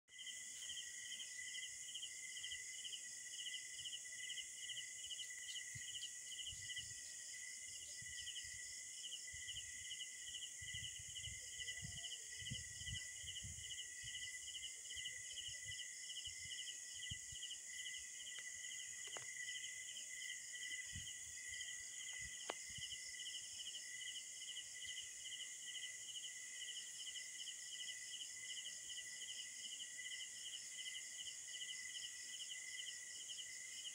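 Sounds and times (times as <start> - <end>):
insects chorus: 0.1 - 33.9.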